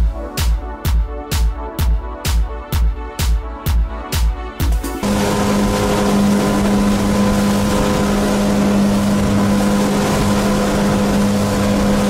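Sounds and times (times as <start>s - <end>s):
motorboat engine drone: 5.0s - 12.0s
wind and water rushing: 5.0s - 12.0s.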